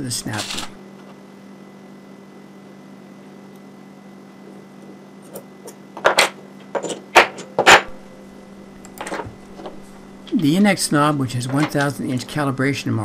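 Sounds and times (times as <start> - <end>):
low steady hum: 0.0 - 13.0
tools clattering on workbench: 5.3 - 7.9.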